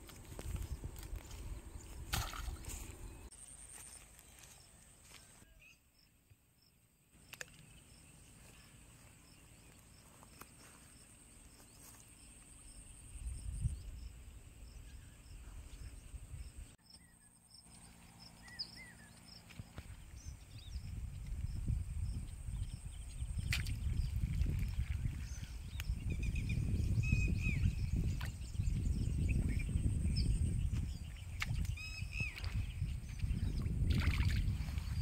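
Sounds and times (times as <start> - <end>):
insect chirping: 5.9 - 19.4.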